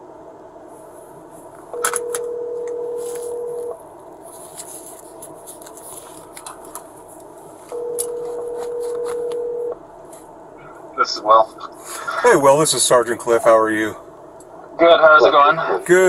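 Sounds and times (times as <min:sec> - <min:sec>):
telephone ringback tone: 0:01.8 - 0:03.8, 0:07.7 - 0:09.8.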